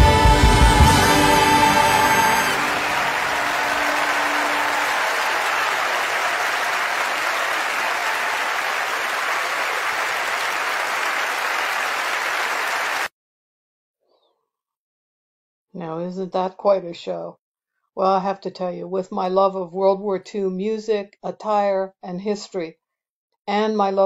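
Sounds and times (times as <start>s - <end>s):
crowd applauding: 0.0s - 13.1s.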